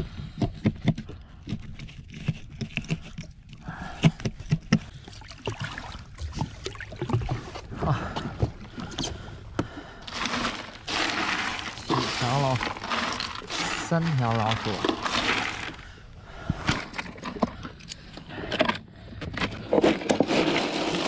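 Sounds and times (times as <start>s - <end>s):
water slapping against hull: 4.0s - 17.4s
sharp knocks and scrapes: 10.1s - 15.8s.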